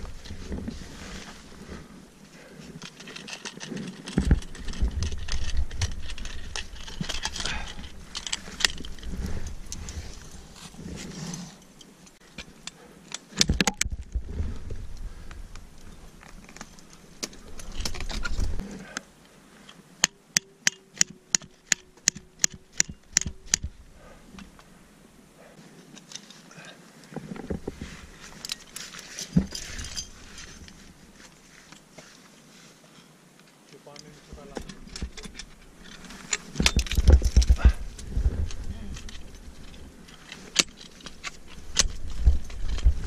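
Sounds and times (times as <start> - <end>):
sharp metallic clicks: 20.0 - 23.7
metal hardware clinking: 28.4 - 30.8
wind rumbling on microphone: 36.5 - 40.0, 41.3 - 43.0.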